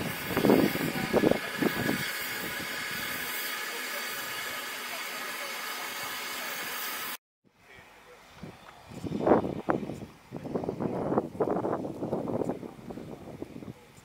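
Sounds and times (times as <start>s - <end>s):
steam locomotive hissing: 0.0s - 7.2s.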